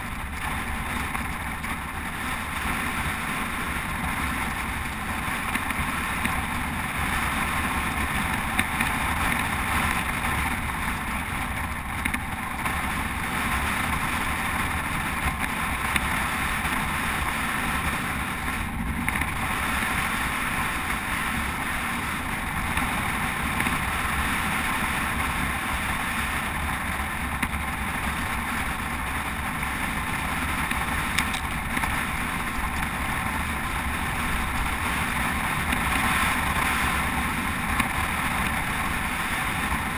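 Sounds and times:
bike tyres rolling on road: 0.0s - 39.9s.

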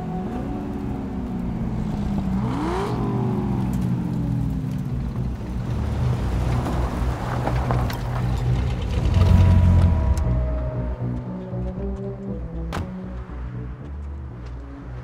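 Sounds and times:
car engine revving past: 1.3s - 11.2s.

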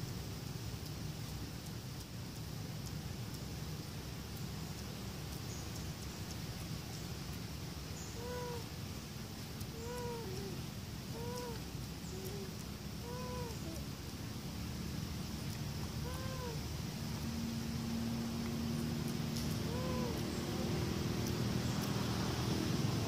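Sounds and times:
low background rumble: 0.0s - 23.0s
monkey coo calls: 8.0s - 8.7s, 9.7s - 14.0s, 15.8s - 16.7s, 18.8s - 21.9s.

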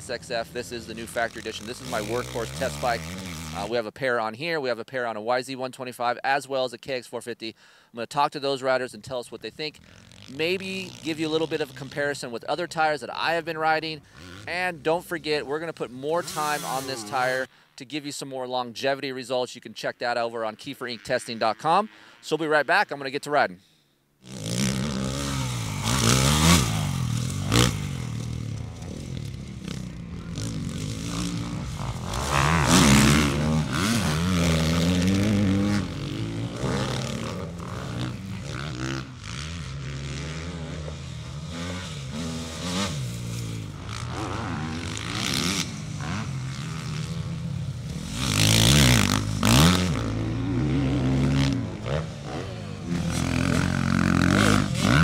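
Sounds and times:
dirt bike engines revving: 0.0s - 4.0s, 9.0s - 17.5s, 24.2s - 55.0s.

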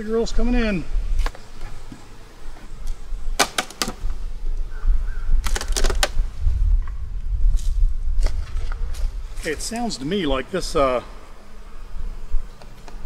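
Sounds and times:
wind rumble on microphone: 0.2s - 1.3s, 4.0s - 11.0s.

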